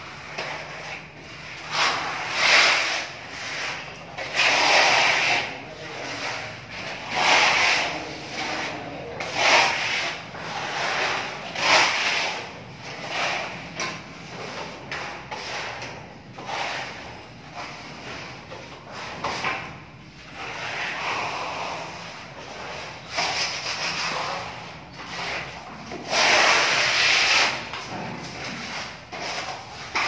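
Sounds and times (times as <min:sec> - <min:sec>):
sandpaper rubbing on plaster wall: 0:00.0 - 0:30.0.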